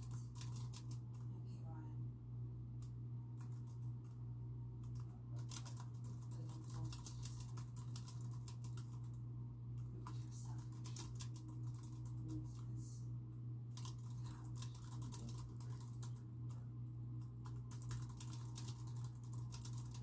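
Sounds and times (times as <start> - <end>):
typing on computer keyboard: 0.0 - 1.2, 2.8 - 4.2, 4.8 - 9.2, 10.0 - 12.4, 13.8 - 16.6, 17.2 - 20.0
steady low hum: 0.0 - 20.0.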